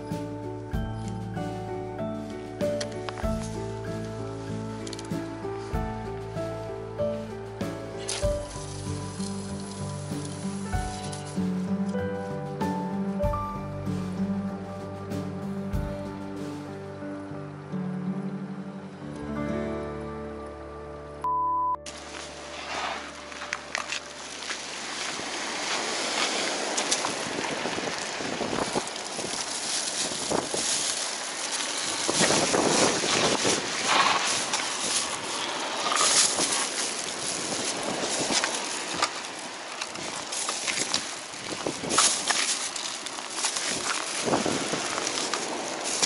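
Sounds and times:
plastic bags rustling: 8.0s - 11.6s, 21.9s - 46.0s
wind buffeting microphone: 25.1s - 46.0s.

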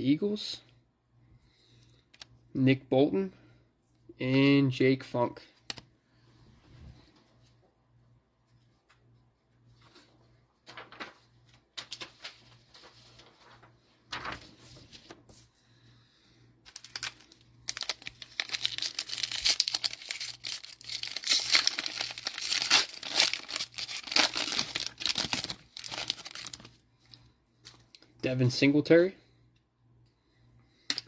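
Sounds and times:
plastic wrapper tearing and crinkling: 16.7s - 26.8s.

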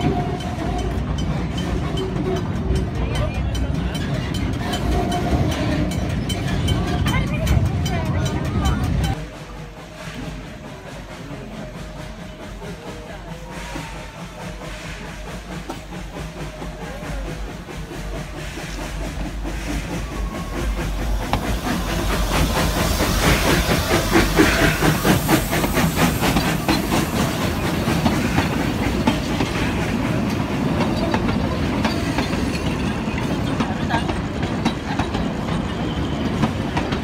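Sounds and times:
steam locomotive passing: 0.0s - 37.0s
train wheels clacking over rail joints: 0.0s - 37.0s
steam hissing: 9.2s - 37.0s.

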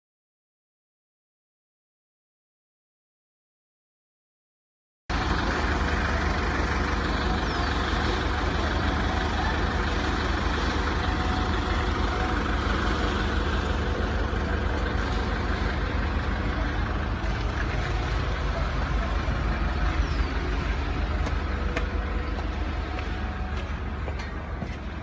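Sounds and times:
concrete pump droning: 5.1s - 25.0s.

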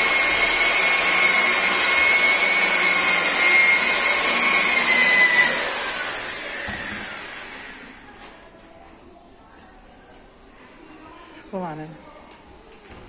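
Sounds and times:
electric polisher whining: 0.0s - 7.9s.

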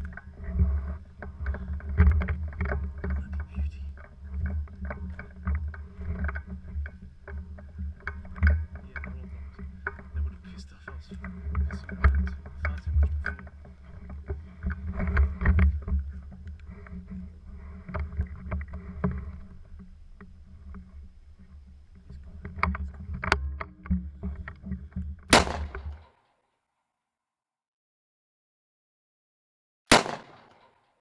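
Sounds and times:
handling and microphone noise: 0.0s - 26.1s
loud sharp gunshot crack: 25.3s - 26.0s, 29.9s - 30.7s.

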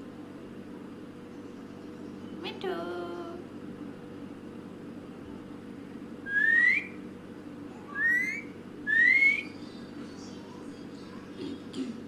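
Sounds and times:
parakeet whistling: 6.2s - 7.0s, 7.8s - 9.7s.

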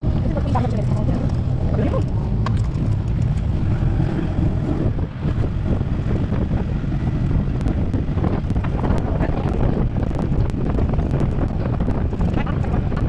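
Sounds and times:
buggy running on wet road: 0.0s - 13.0s
wind rumble on microphone: 0.0s - 13.0s.

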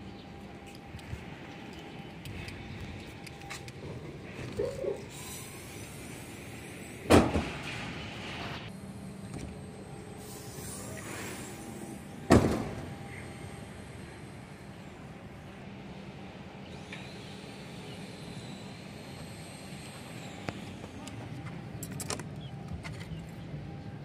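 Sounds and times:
steady background noise: 0.0s - 24.0s.

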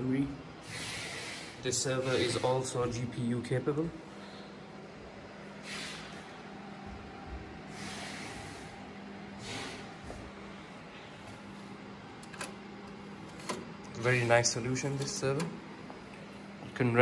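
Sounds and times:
server hum: 0.0s - 17.0s
short breathy hisses: 0.6s - 2.4s, 5.6s - 6.3s, 7.7s - 8.8s, 9.4s - 10.0s.

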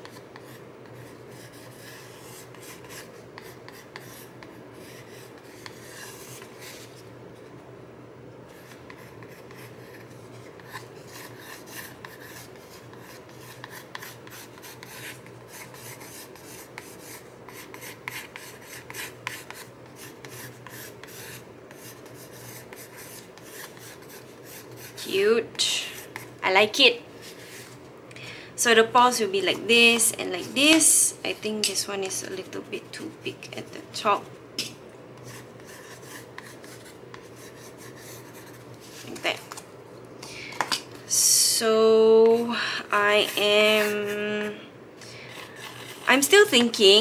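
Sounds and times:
pencil scratching on cardboard: 0.0s - 6.9s, 8.6s - 25.1s, 43.1s - 44.4s.

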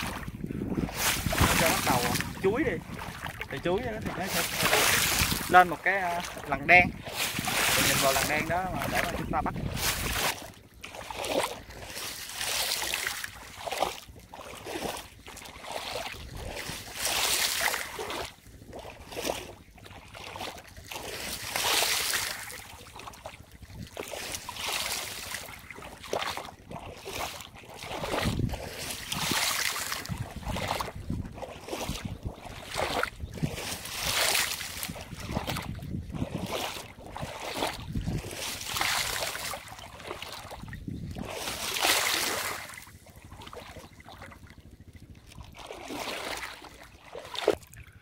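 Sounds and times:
shallow water splashing: 0.0s - 48.0s.

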